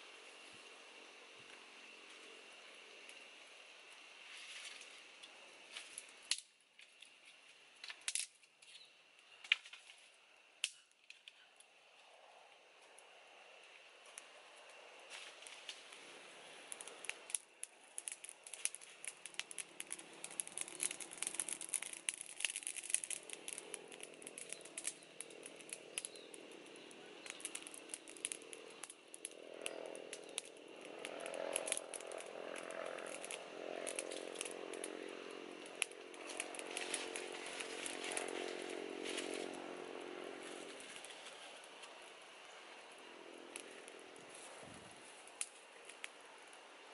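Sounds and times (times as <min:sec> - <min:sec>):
wood fire crackling: 0:01.4 - 0:46.9
dry leaves and twigs handled: 0:04.0 - 0:11.6, 0:14.1 - 0:46.7
small engine droning: 0:22.9 - 0:46.9.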